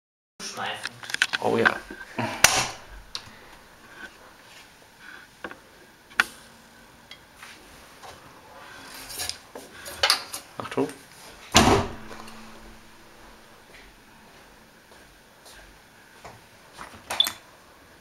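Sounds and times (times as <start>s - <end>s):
washing machine door clicks: 11.6s - 13.0s.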